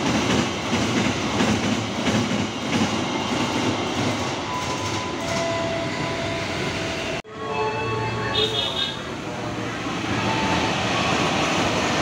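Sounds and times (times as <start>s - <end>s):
train wheels clacking on rail joints: 0.0s - 5.7s
freight train rumble: 0.0s - 12.0s.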